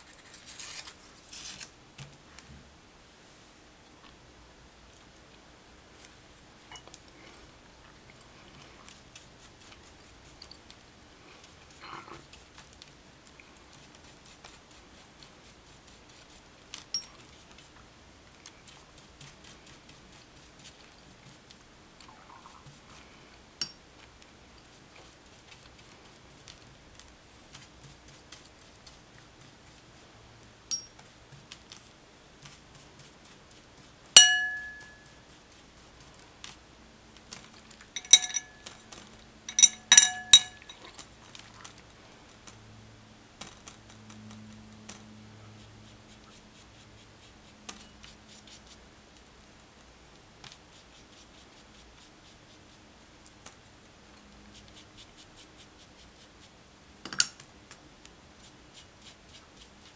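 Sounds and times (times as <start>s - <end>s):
brush clinking on ceramic plate: 6.7s - 6.9s, 16.8s - 17.2s, 23.6s - 23.8s, 30.7s - 31.0s, 34.2s - 35.2s, 38.0s - 38.8s, 39.4s - 41.0s.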